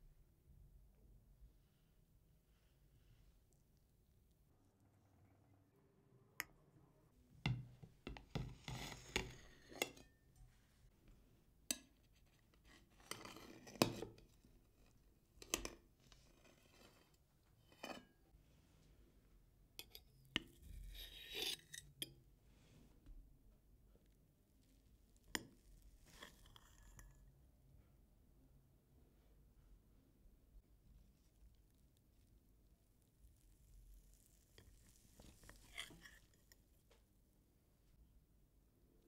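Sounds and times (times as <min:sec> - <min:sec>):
cutlery scraping plate: 0:20.8 - 0:22.0.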